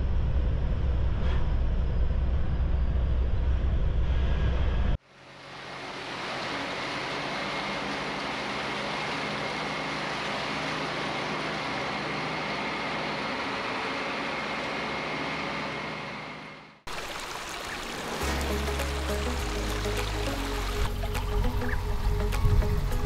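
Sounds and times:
water rushing over rocks: 16.9s - 22.6s.

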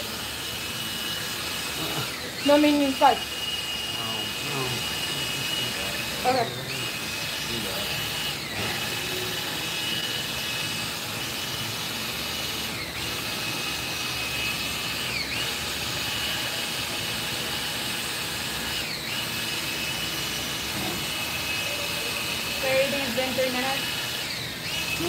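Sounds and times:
drill motor whine: 0.0s - 25.0s.

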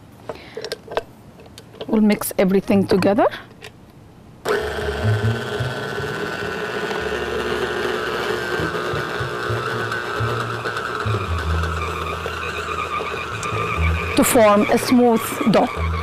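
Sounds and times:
stand mixer motor whine: 4.5s - 16.0s.

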